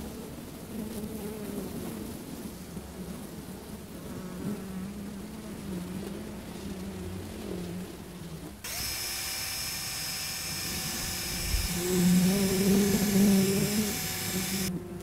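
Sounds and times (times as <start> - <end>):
drill with wire brush whining: 8.6 - 14.7.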